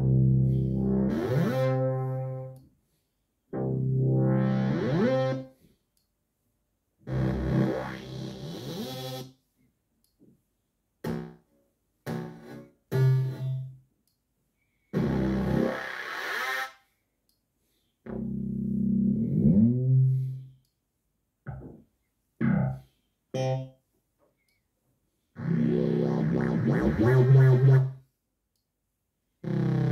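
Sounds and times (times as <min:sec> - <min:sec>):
synthesizer bass notes: 0:00.0 - 0:02.5, 0:03.6 - 0:05.5, 0:07.1 - 0:09.3, 0:12.1 - 0:13.8, 0:15.0 - 0:16.4, 0:18.1 - 0:20.5, 0:22.4 - 0:23.7, 0:25.4 - 0:28.0, 0:29.4 - 0:29.9.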